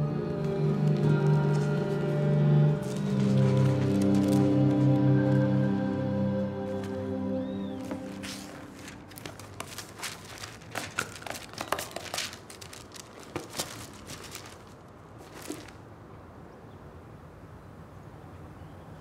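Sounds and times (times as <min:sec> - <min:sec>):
paper and plastic rustling: 0:00.3 - 0:05.5, 0:06.7 - 0:07.1, 0:07.7 - 0:15.9.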